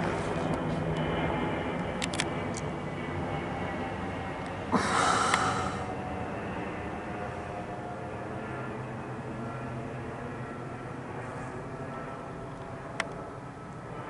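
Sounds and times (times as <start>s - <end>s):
jet engine rumble with whining: 0.0s - 14.0s
short breathy rush: 4.8s - 5.9s.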